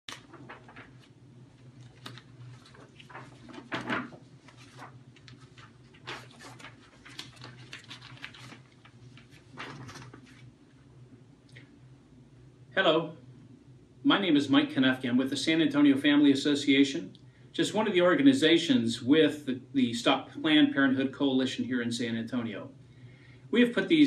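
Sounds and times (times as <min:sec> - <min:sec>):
paper rustling and tapping: 0:00.1 - 0:10.5
steady low hum: 0:00.1 - 0:24.0.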